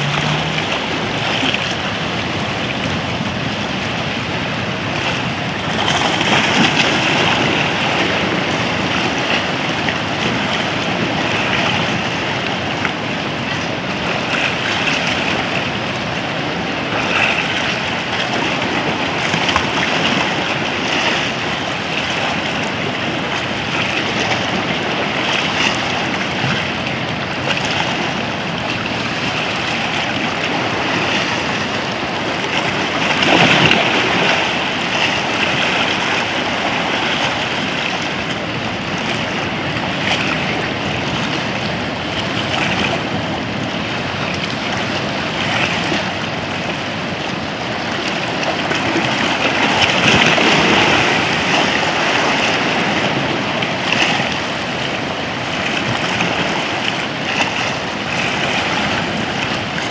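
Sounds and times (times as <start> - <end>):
sea waves breaking around rocks: 0.0 - 59.9.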